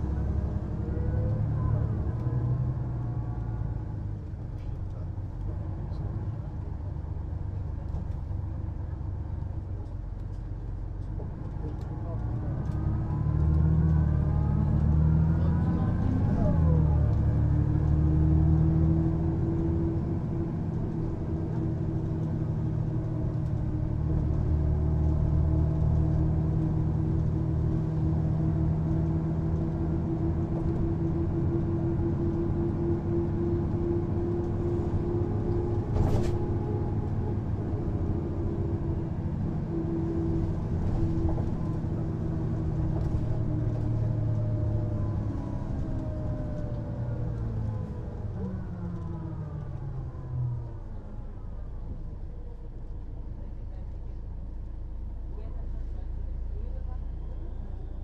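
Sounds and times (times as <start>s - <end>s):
bus diesel engine pulling away: 0.0s - 58.0s.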